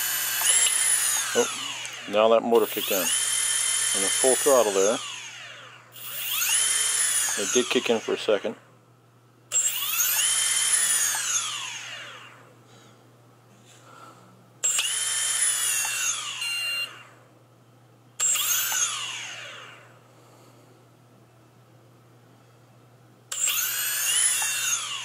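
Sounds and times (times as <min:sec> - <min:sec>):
drone motors whining: 0:00.0 - 0:08.6, 0:09.5 - 0:12.5, 0:14.6 - 0:17.2, 0:18.2 - 0:19.9, 0:23.3 - 0:25.0.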